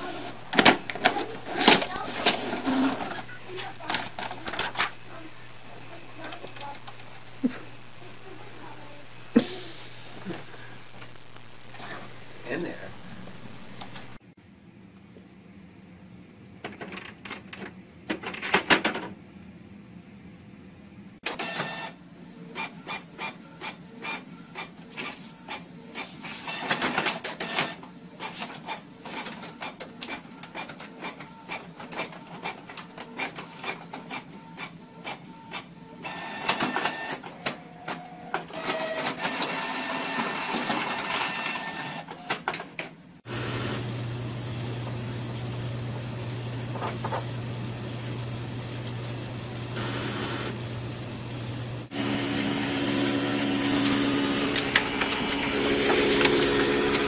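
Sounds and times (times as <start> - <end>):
printer clicking and whirring: 0.2 - 5.0, 21.2 - 43.8, 51.8 - 57.0.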